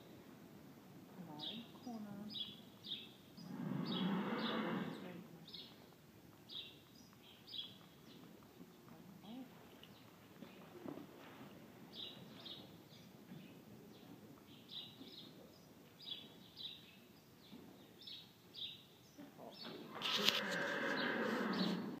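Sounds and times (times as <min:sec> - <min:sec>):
small birds chirping: 0:01.2 - 0:10.8, 0:11.9 - 0:21.9.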